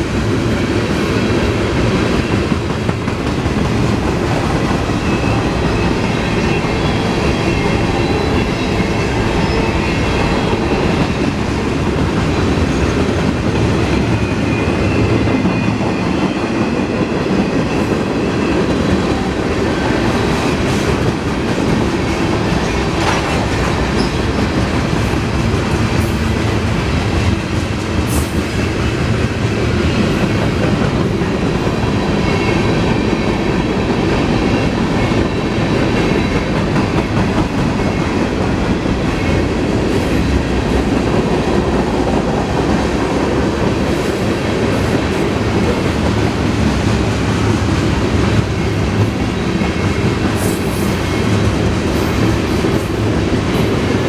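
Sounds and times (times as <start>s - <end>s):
train wheels rumbling over rails: 0.0s - 54.0s.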